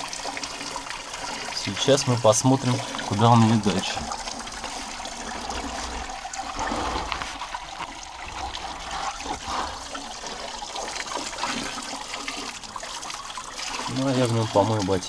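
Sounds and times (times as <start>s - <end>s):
stream trickling over rock: 0.0s - 15.0s.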